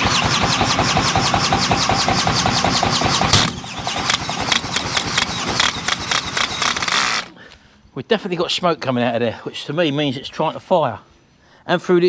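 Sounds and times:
cordless drill cranking engine: 0:00.0 - 0:07.4.

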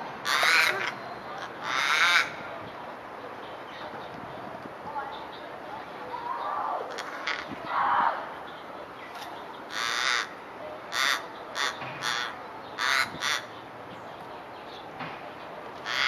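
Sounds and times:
raven cawing: 0:00.2 - 0:02.5, 0:06.3 - 0:08.3, 0:09.7 - 0:13.6.

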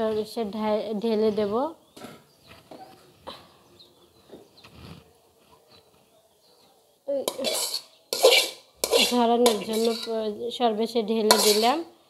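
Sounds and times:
knocks of metal wok handling: 0:07.3 - 0:10.2, 0:11.3 - 0:11.8.

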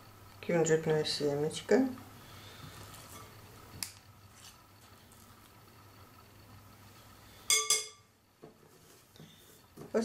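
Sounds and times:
spoon clinking against bowl: 0:07.5 - 0:08.0.

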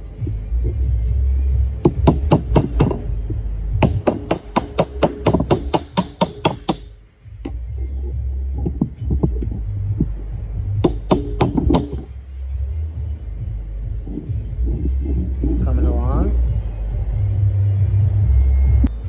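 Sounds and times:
rapid hammer taps on metal: 0:01.8 - 0:03.1, 0:03.8 - 0:06.9, 0:10.8 - 0:12.1.

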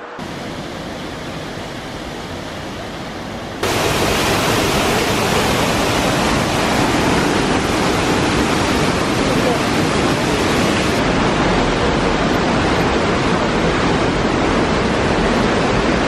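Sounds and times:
river rushing through rock gorge: 0:03.6 - 0:16.0.

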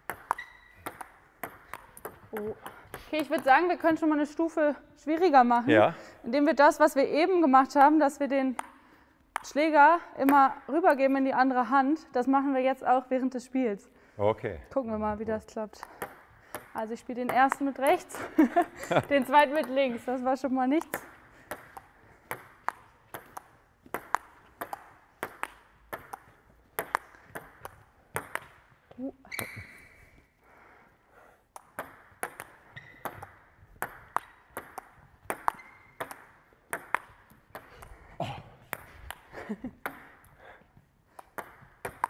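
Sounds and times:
table tennis ball clicking: 0:00.0 - 0:03.7, 0:20.8 - 0:28.7, 0:31.5 - 0:37.9, 0:38.7 - 0:40.4, 0:41.2 - 0:42.0.

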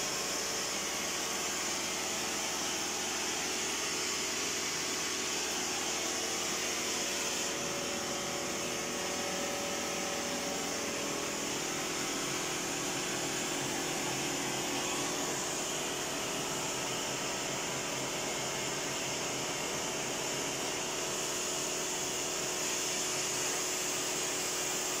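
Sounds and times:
gas torch hissing: 0:01.1 - 0:16.7.

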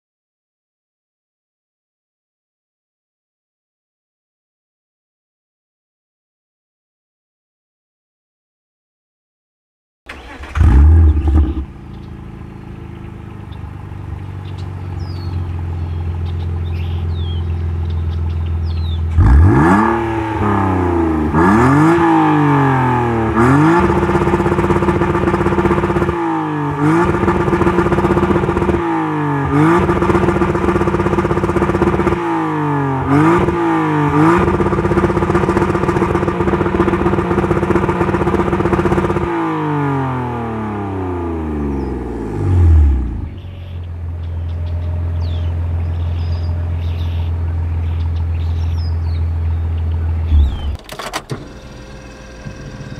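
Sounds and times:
car engine revving on limiter: 0:10.1 - 0:12.9, 0:18.8 - 0:43.4, 0:50.3 - 0:52.9.

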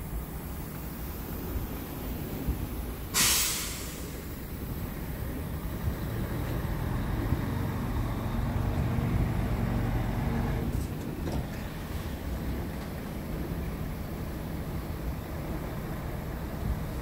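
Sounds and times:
diesel truck engine idling: 0:00.0 - 0:17.0
compressed air hiss: 0:00.9 - 0:05.5.

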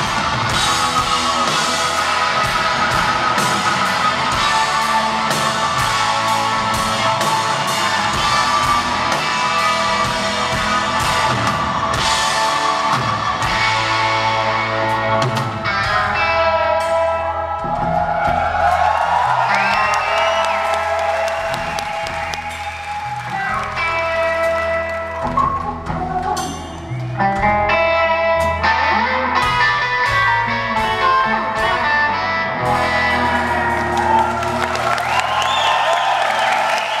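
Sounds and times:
crowd whooping: 0:00.0 - 0:14.2, 0:17.1 - 0:27.2, 0:32.6 - 0:37.0
crowd applauding and cheering: 0:00.0 - 0:14.8, 0:17.1 - 0:27.3, 0:32.5 - 0:37.0
electric guitars ringing: 0:00.0 - 0:17.4
drum kit: 0:00.0 - 0:37.0.

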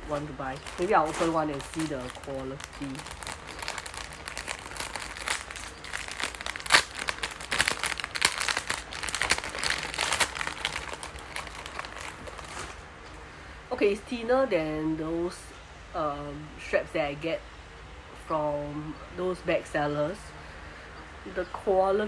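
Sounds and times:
plastic packet crinkling: 0:00.0 - 0:12.8.

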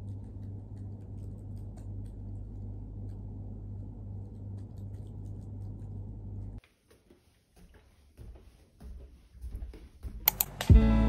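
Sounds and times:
low hum: 0:00.0 - 0:06.6.

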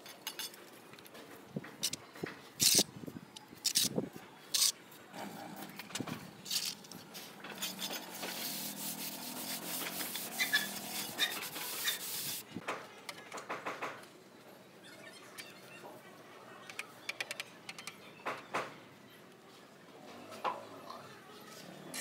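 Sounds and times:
trowel scraping mortar: 0:06.5 - 0:12.4
float rubbing hiss: 0:07.1 - 0:12.5.

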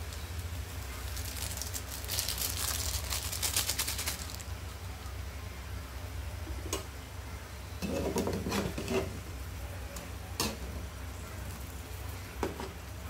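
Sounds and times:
plastic sachet crackling: 0:00.0 - 0:04.8.

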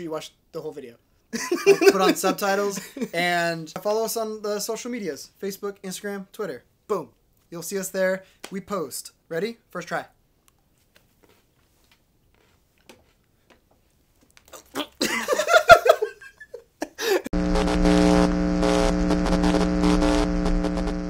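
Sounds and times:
men yelling and laughing: 0:01.4 - 0:03.2, 0:14.7 - 0:17.3.

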